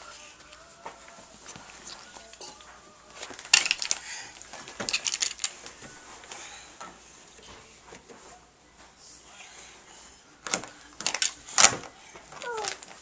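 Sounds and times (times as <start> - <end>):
plastic toy pieces knocking: 3.4 - 4.0, 4.7 - 5.6, 10.5 - 13.0.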